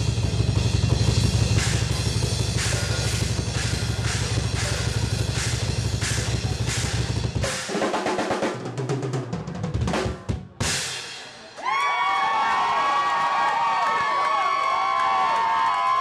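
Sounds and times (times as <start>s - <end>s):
crowd cheering and whooping: 11.4s - 16.0s.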